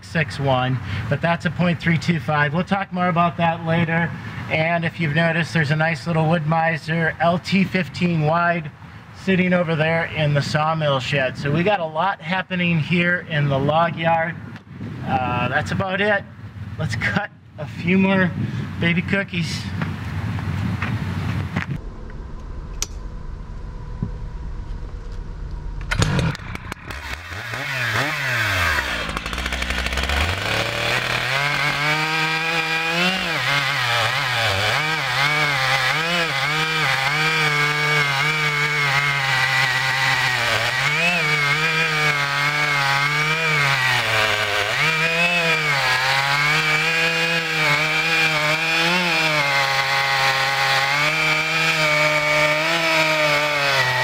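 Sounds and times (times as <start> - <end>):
chainsaw cutting log: 25.9 - 54.0.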